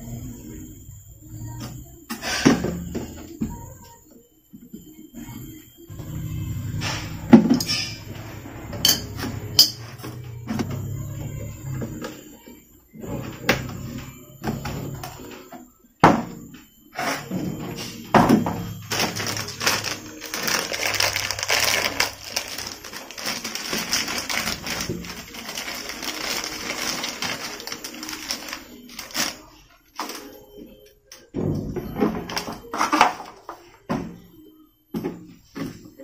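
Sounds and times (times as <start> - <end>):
crackling rustle: 19.0 - 29.4.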